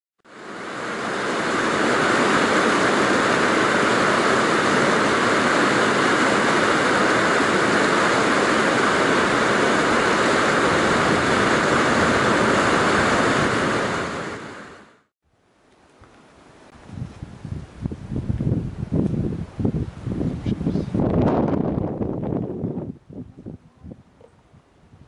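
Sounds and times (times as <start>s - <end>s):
water rushing over rocks: 0.3s - 15.0s.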